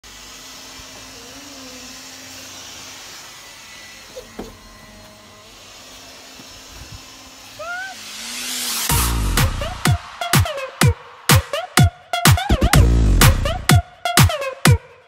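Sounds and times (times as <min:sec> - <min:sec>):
window vacuum whirring: 0:00.0 - 0:10.8
short rising whistle: 0:07.5 - 0:12.6.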